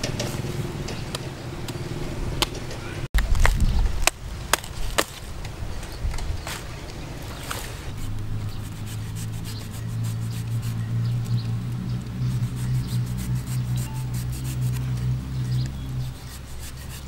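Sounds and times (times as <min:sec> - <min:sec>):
knife scraping fruit husk: 0:07.4 - 0:11.3, 0:12.2 - 0:17.0
low hum: 0:07.8 - 0:17.0.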